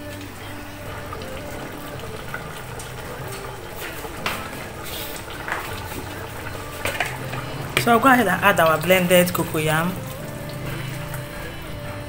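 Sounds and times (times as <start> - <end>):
liquid bubbling in a pot: 0.0 - 12.0
utensil knocking against pot: 6.7 - 8.0.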